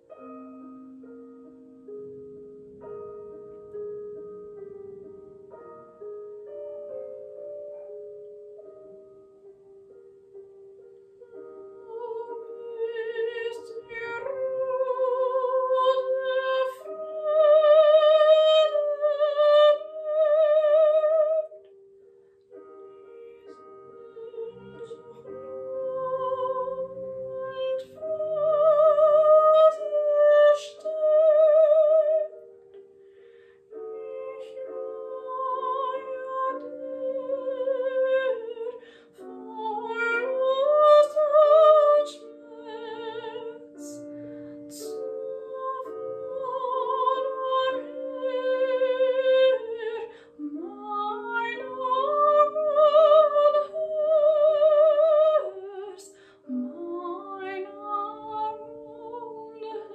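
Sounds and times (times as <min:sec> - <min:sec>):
piano accompaniment: 0:00.0 - 0:59.9
woman singing operatically: 0:11.9 - 0:21.5, 0:24.1 - 0:32.3, 0:34.0 - 0:44.0, 0:44.8 - 0:59.9.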